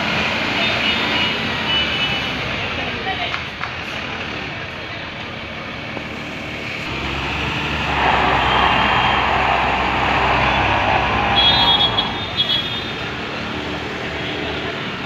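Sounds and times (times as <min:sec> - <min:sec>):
truck diesel engine running: 0:06.9 - 0:12.7.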